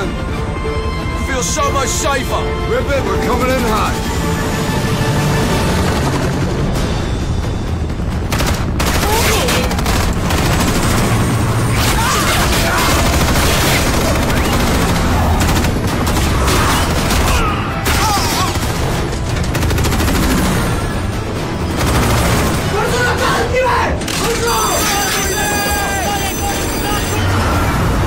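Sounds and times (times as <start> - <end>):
background music: 0.0 - 28.0
rapid gunfire: 7.7 - 23.2.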